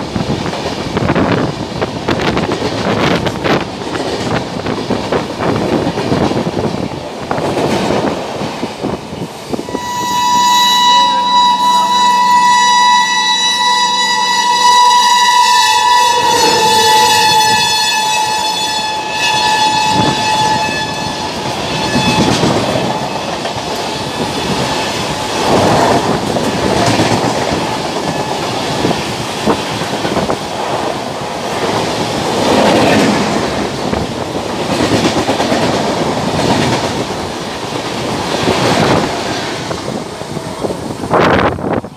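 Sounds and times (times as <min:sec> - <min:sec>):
train wheels rumbling on rails: 0:00.0 - 0:41.9
train horn: 0:09.6 - 0:26.8.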